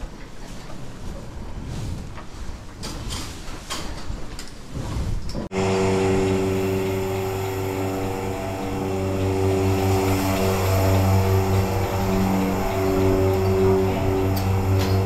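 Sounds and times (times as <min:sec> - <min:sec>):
engine running steadily: 0:05.5 - 0:15.0.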